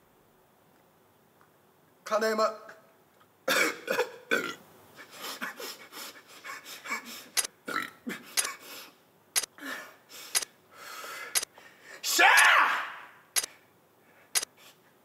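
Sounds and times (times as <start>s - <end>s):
man burping: 3.5s - 4.6s, 7.6s - 8.2s.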